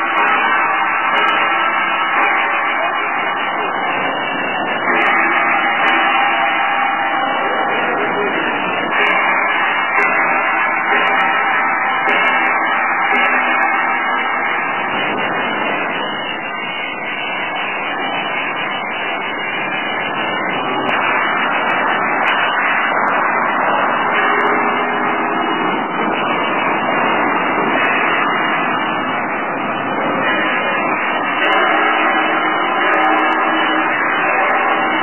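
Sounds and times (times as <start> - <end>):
belt conveyor whirring: 0.0 - 35.0.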